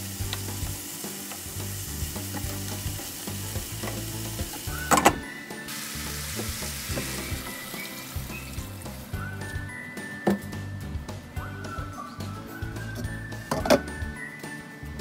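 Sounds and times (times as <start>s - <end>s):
water pouring into pan: 0.0s - 9.2s
food sizzling in oil: 0.0s - 10.2s.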